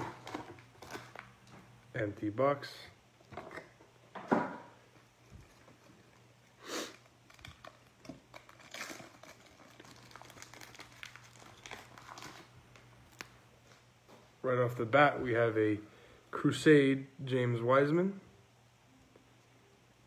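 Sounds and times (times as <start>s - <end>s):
foil wrapper crinkling and tearing: 0.0s - 1.5s, 6.9s - 13.4s.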